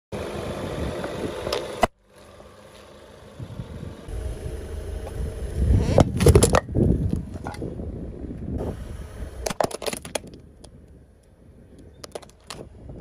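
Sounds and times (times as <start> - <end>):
car engine running: 0.1 - 9.6
sharp pop under tyre: 5.0 - 7.7, 9.4 - 10.8.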